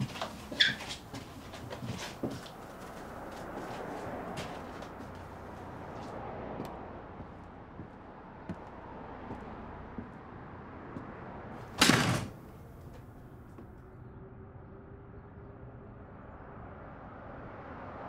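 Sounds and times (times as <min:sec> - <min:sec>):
door shutting: 0:11.8 - 0:12.4.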